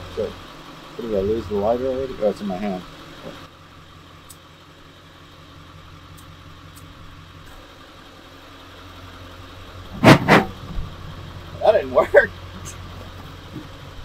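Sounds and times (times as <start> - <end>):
engine idling: 0.0 - 14.0
loud pops: 10.0 - 10.6.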